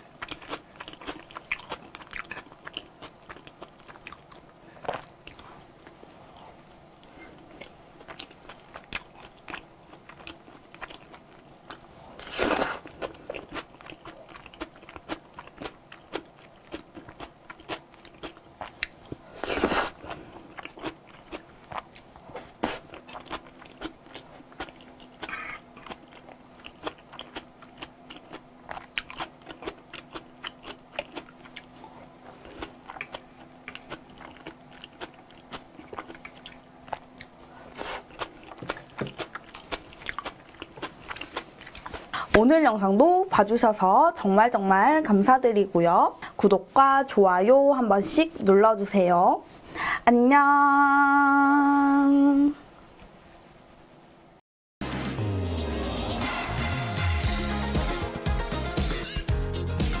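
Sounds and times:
wet chewing: 0.2 - 42.3.

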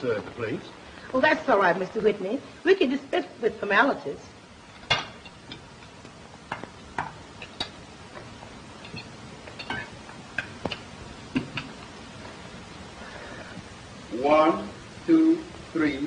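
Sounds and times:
film soundtrack hiss: 0.0 - 16.0
cutlery clinking on plates: 4.8 - 11.8.

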